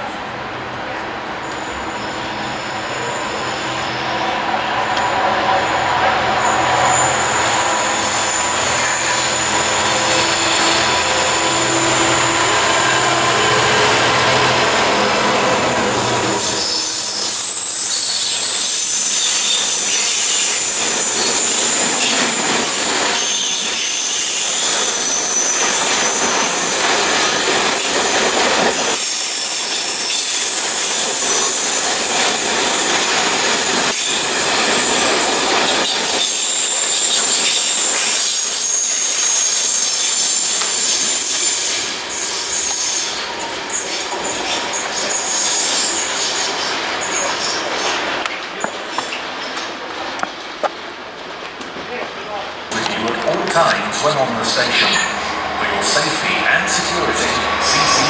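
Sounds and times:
train wheel rumble: 0.0s - 58.0s
high wheel squeal: 1.4s - 48.0s, 54.1s - 58.0s
locomotive engine running loudly: 4.4s - 16.8s, 52.7s - 58.0s.

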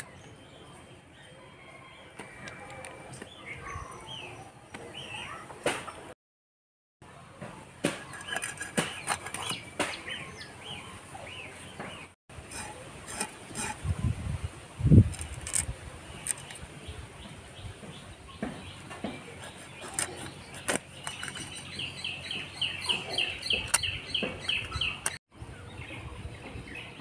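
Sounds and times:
knife scraping fish scales: 12.5s - 13.9s.

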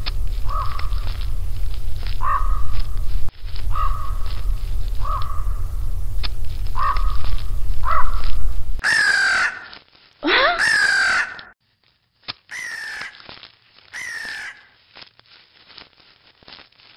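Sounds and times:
crow cawing: 0.4s - 1.1s, 2.2s - 2.9s, 3.7s - 4.4s, 5.0s - 5.6s, 6.8s - 9.8s, 10.4s - 11.6s, 12.5s - 13.3s, 13.9s - 14.8s.

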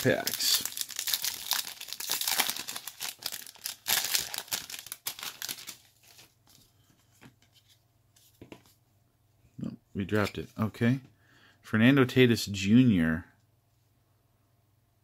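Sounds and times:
plastic wrapper tearing and crinkling: 0.0s - 6.3s.

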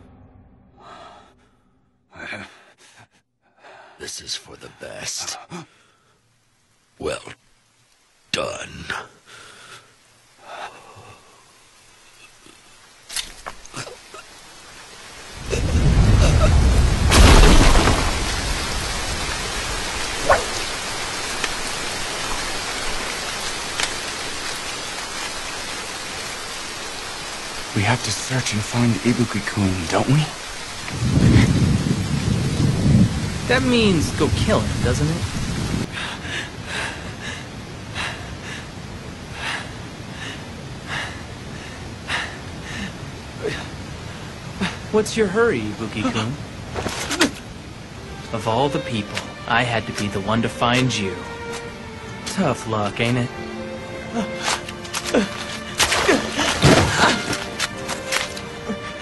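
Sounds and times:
heavy rain: 3.8s - 59.0s
thunder rumble and crack: 15.3s - 23.1s, 28.6s - 37.4s.

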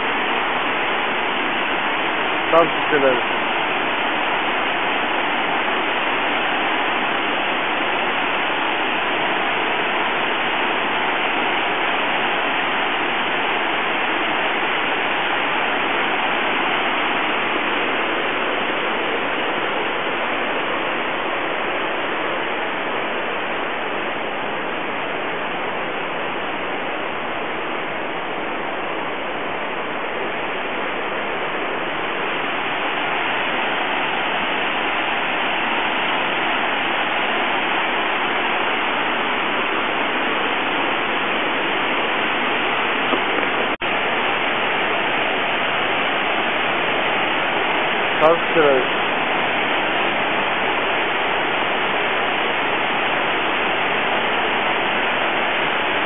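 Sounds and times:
waterfall roaring: 0.0s - 56.0s.

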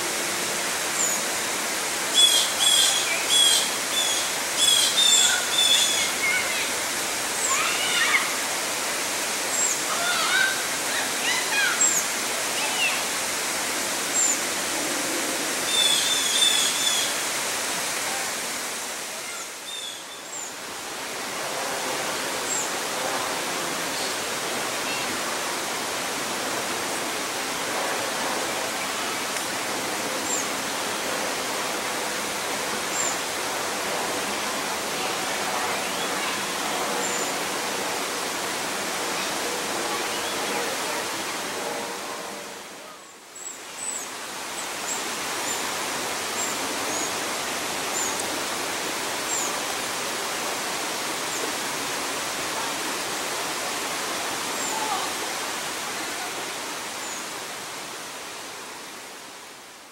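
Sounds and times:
water rushing: 0.0s - 59.9s.

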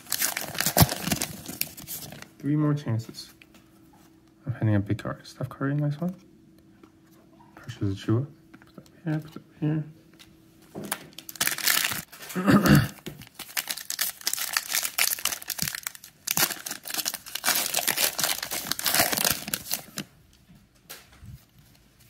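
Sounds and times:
plastic wrappers crinkling and tearing: 0.0s - 2.4s, 10.8s - 12.4s, 13.0s - 20.1s.

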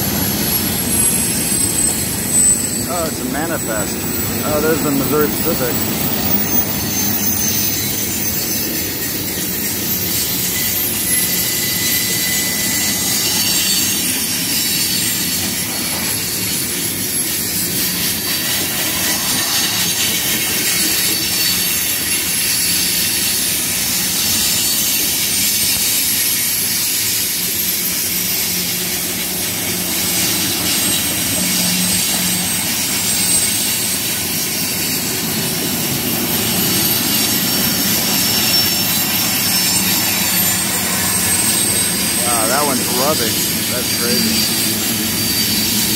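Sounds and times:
high wheel squeal: 0.0s - 45.9s
train cars rumbling on rails: 0.0s - 45.9s.

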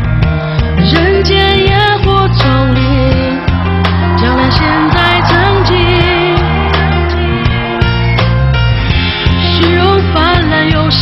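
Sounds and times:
band with bass and drums: 0.0s - 11.0s
woman singing a pop ballad: 0.8s - 6.6s, 9.4s - 11.0s.

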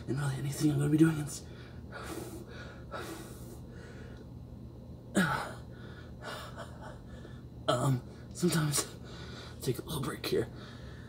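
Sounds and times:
man breathing hard: 1.4s - 4.3s, 5.2s - 7.6s, 9.0s - 9.6s, 10.5s - 11.0s.

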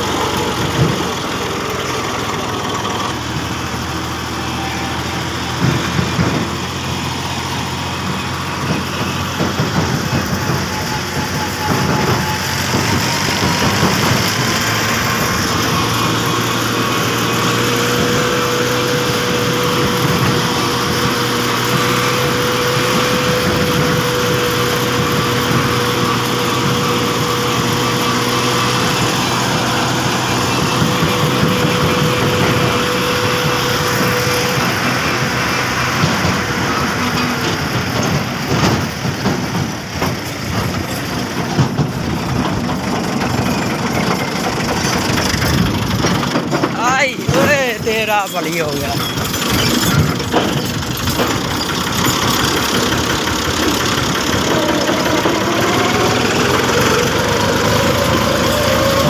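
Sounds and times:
tractor diesel engine running: 0.0s - 59.0s.

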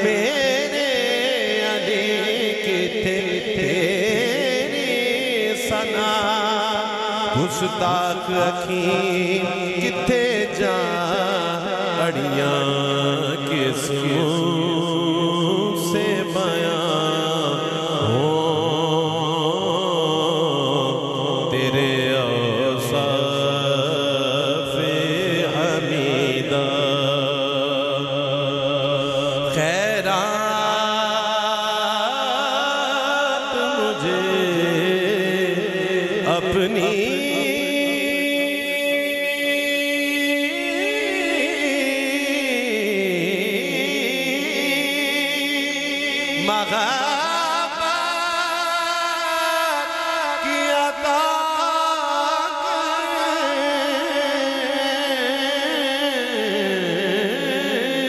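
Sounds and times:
man singing into a microphone: 0.0s - 58.0s.

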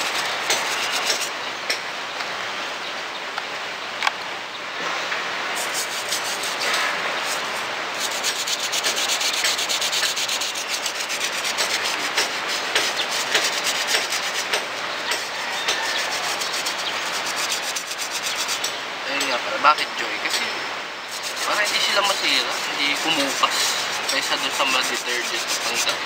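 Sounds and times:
toothbrush scrubbing rubber: 0.0s - 1.3s, 5.6s - 18.7s, 21.1s - 26.0s.

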